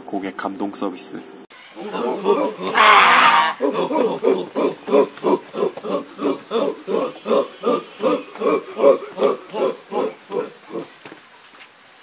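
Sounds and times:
boys chanting in unison: 0:01.8 - 0:11.0.

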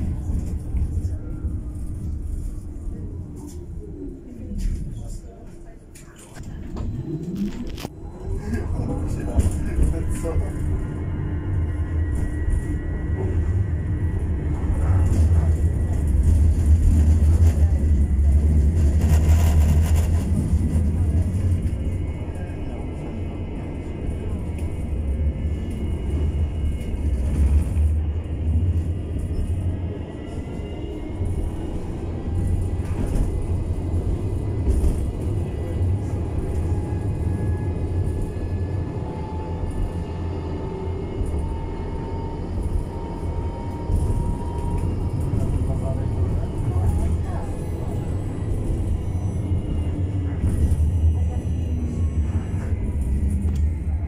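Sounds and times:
tram wheels rumbling on rails: 0:00.0 - 0:54.0.

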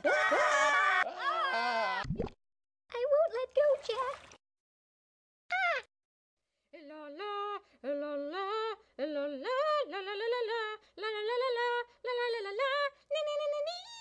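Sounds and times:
person singing wordless melody: 0:06.7 - 0:14.0.

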